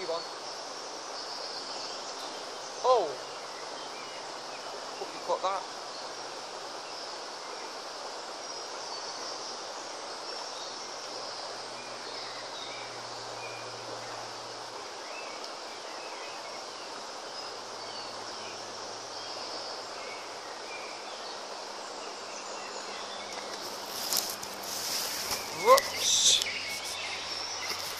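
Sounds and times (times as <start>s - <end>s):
flowing river water: 0.0s - 27.9s
high bird chirps: 23.1s - 27.9s.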